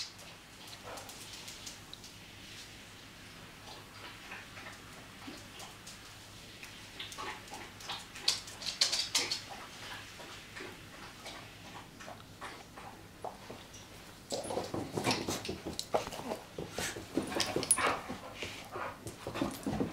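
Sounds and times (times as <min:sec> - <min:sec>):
dog claws clicking on wooden floor: 0:07.0 - 0:09.6.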